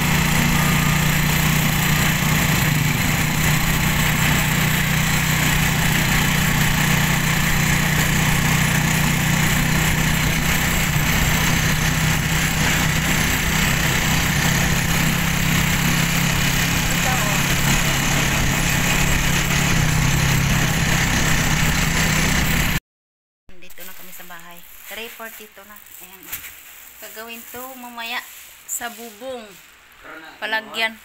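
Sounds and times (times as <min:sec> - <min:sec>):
small motorcycle engine droning: 0:00.0 - 0:22.8.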